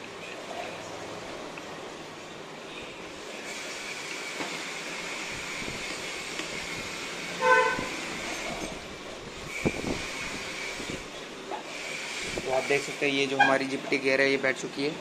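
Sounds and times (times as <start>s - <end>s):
vehicle horn toot: 7.4s - 7.9s.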